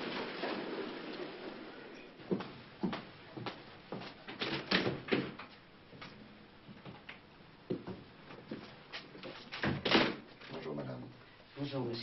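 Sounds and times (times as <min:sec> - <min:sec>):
footsteps on hard floor: 0:02.3 - 0:04.2.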